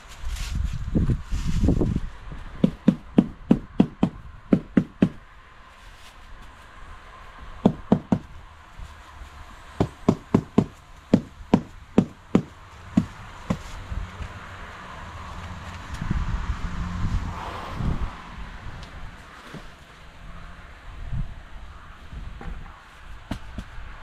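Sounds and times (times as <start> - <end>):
dense rustling noise: 0.0 - 3.8, 5.1 - 14.4
sharp knocks: 2.6 - 5.2, 7.6 - 8.3, 9.8 - 13.7.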